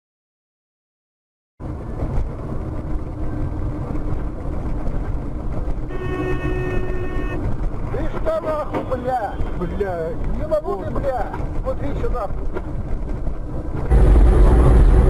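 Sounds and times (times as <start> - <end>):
vehicle road and engine noise: 1.6 - 15.0
car horn: 5.8 - 7.6.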